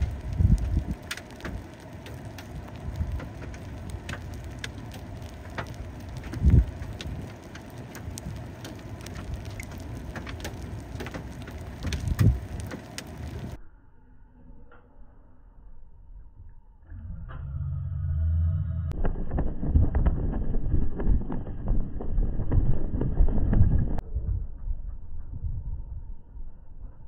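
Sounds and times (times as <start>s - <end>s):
hailstones striking: 0.0s - 13.6s, 19.0s - 24.0s.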